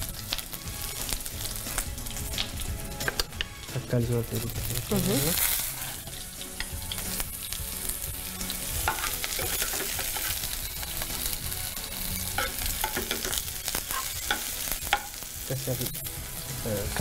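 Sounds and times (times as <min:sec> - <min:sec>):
vegetables sizzling in frying pan: 0:00.0 - 0:17.0
metal spoon scraping pan: 0:08.5 - 0:10.4, 0:12.1 - 0:15.1.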